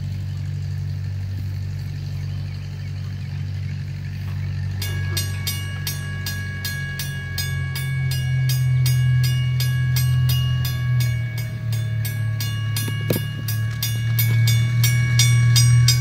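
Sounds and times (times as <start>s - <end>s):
loud low hum: 0.0s - 16.0s
railroad crossing bell ringing: 4.5s - 16.0s.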